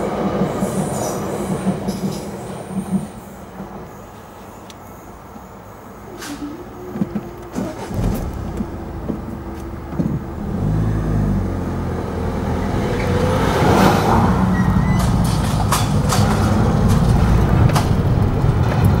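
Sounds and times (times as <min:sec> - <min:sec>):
car engine accelerating: 0:07.4 - 0:19.0.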